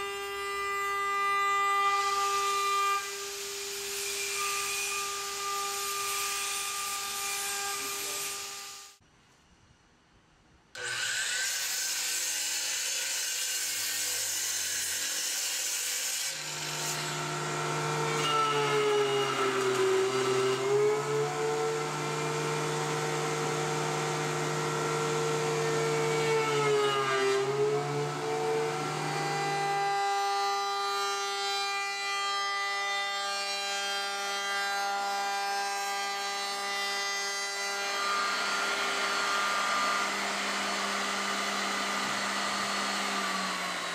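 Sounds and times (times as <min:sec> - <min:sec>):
miter saw cutting wood: 0:00.0 - 0:09.0, 0:10.8 - 0:43.9
router spindle whine: 0:16.3 - 0:32.1, 0:34.2 - 0:43.9
thickness planer motor hum: 0:16.3 - 0:33.7, 0:34.4 - 0:43.9.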